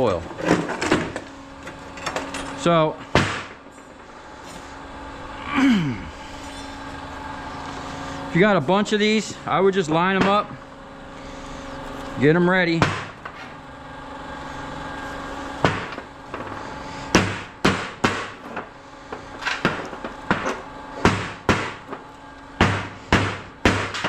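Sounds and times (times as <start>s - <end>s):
hammer striking steel: 22.6s - 24.0s.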